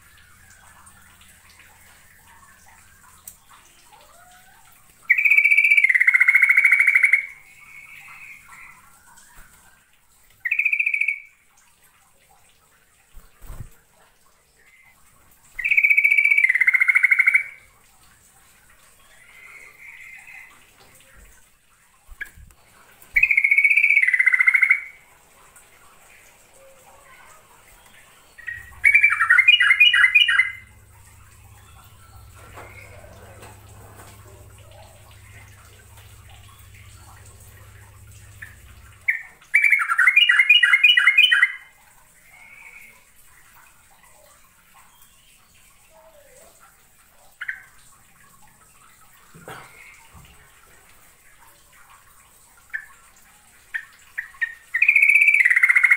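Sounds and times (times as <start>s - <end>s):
bird singing bubbling notes: 0.0s - 11.5s, 14.5s - 17.8s, 23.1s - 25.4s, 26.0s - 43.2s, 44.0s - 46.5s, 52.6s - 55.9s
faint bird calls: 26.0s - 41.5s.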